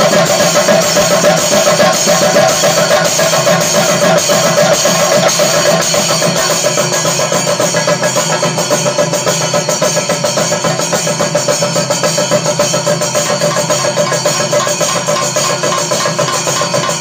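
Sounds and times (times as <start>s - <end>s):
drums beaten with sticks in fast roll: 0.0s - 17.0s.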